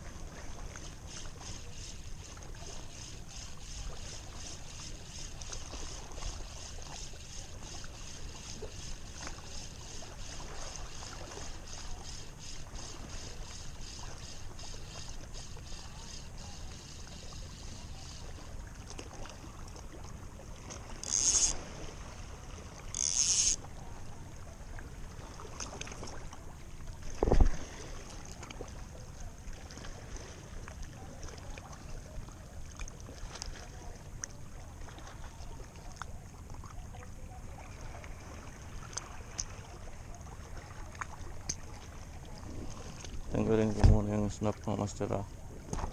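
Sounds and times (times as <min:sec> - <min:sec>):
fishing reel ticking: 0:00.8 - 0:18.6, 0:21.0 - 0:21.6, 0:22.9 - 0:23.7
short hissing sounds: 0:06.4 - 0:18.4, 0:21.0 - 0:21.6.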